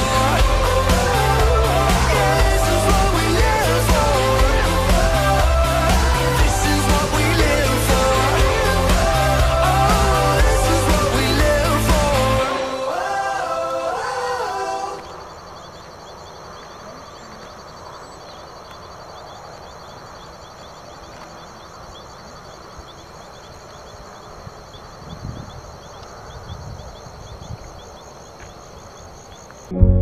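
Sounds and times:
insects trilling: 0.0 - 29.7
low rumble of wind: 23.1 - 28.0.

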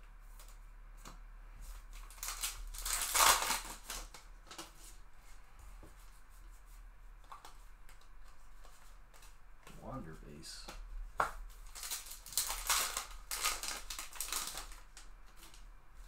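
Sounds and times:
wrapper tearing open: 2.0 - 4.7, 11.6 - 15.6
cards being handled: 7.2 - 15.6.

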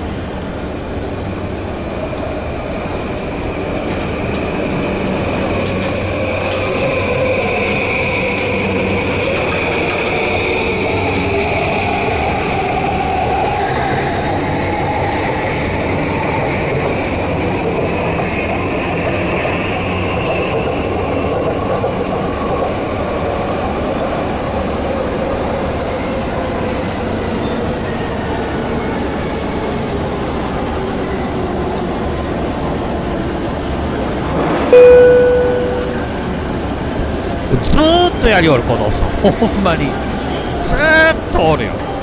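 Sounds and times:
electric train running past: 28.2 - 37.5.

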